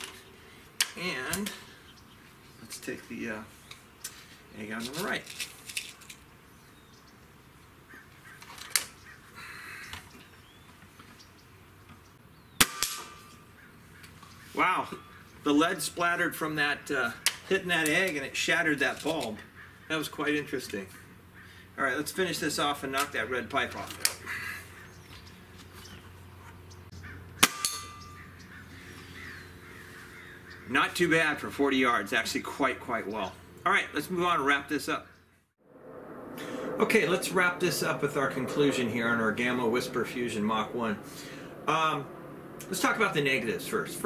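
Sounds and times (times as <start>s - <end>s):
pellet striking target: 12.6s - 13.3s, 27.4s - 28.0s
air rifle shot: 12.6s - 13.4s.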